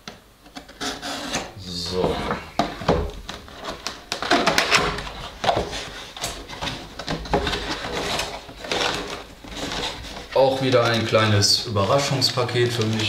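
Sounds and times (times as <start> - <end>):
cardboard box scraping and rubbing: 4.9 - 10.9.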